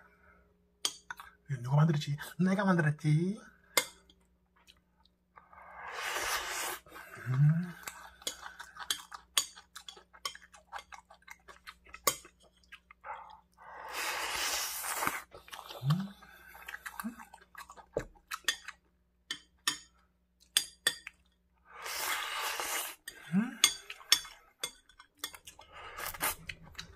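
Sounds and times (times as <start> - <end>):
slurping: 5.7 - 9.2, 9.8 - 17.9, 21.7 - 24.4, 25.3 - 26.9
wet chewing: 6.7 - 13.6, 14.8 - 18.8, 21.9 - 26.9
person humming: 7.1 - 7.8, 23.2 - 23.8.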